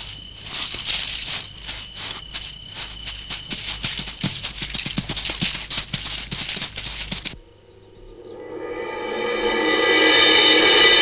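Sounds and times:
lizard scratching on sand: 0.0 - 7.4.

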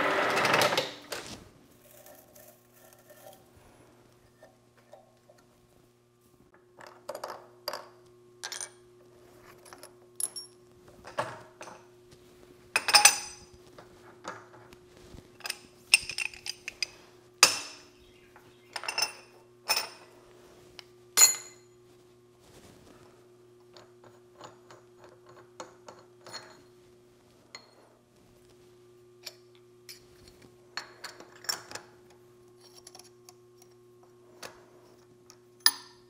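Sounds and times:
metal tools clinking: 15.4 - 17.9, 18.7 - 20.1.

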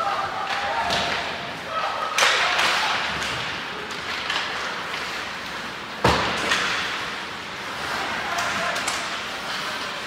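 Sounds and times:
skates scraping on ice: 2.4 - 10.0
thud against rink boards: 6.0 - 6.9.

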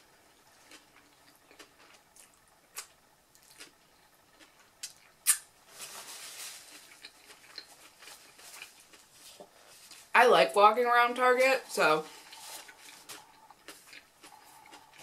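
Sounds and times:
faint chewing: 0.3 - 10.1, 12.0 - 15.0
paper wrapper rustling: 5.7 - 7.0.

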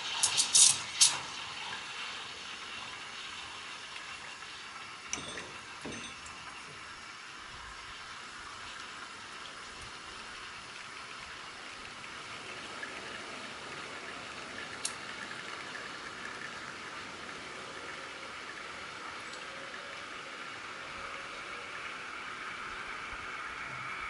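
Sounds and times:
steam wand hissing into milk: 0.0 - 5.0.

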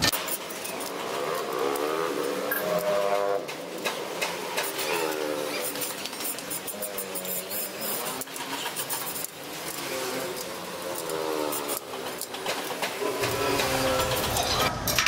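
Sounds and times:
motorbike engines passing: 0.0 - 15.0.

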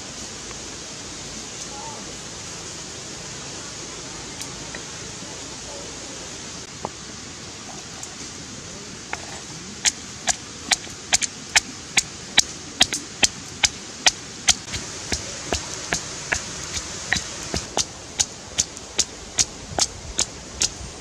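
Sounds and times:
pestle pounding in stone mortar: 14.5 - 20.3.

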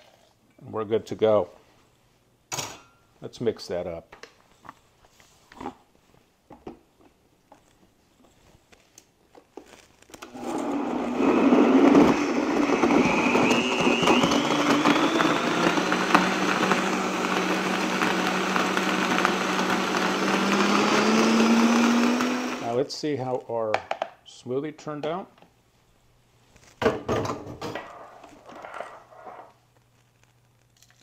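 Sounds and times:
blender motor whining: 10.2 - 22.7.

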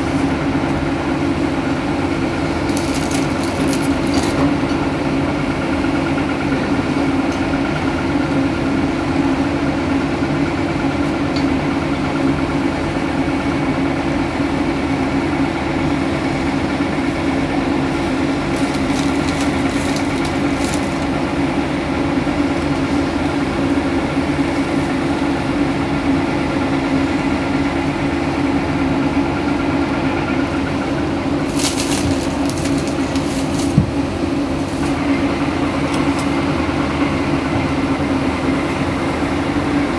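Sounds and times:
excavator diesel engine: 0.0 - 39.9
dirt rattling in bucket: 2.4 - 4.6, 18.2 - 21.4, 31.4 - 35.1.

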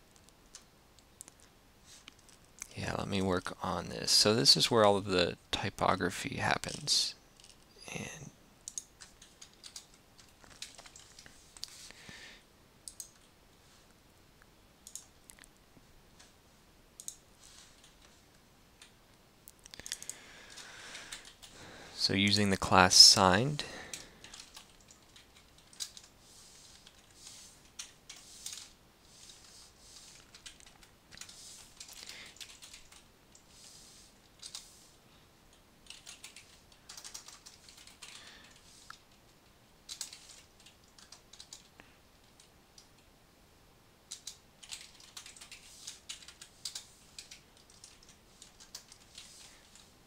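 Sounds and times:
computer keyboard typing: 8.6 - 11.7, 12.8 - 13.3, 14.8 - 15.4, 17.0 - 18.1, 19.7 - 21.5, 23.8 - 33.4, 34.3 - 34.7, 35.8 - 39.2, 39.9 - 43.0, 44.1 - 49.9.

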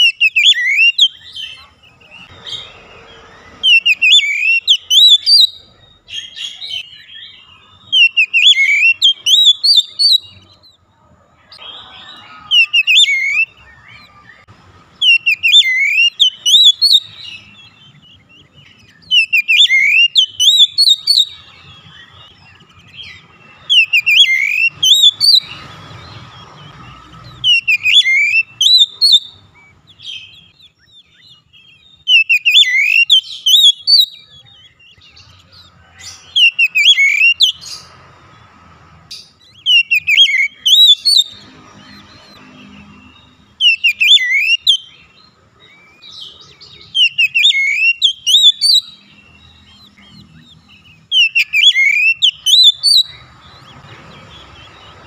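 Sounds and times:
bird song whistled notes: 0.0 - 10.8, 11.4 - 38.0, 39.1 - 55.0.

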